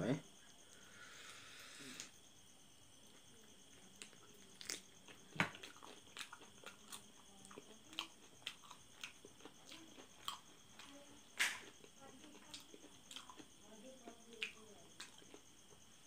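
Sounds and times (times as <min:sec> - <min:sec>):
close-miked chewing and biting: 0:03.9 - 0:15.4.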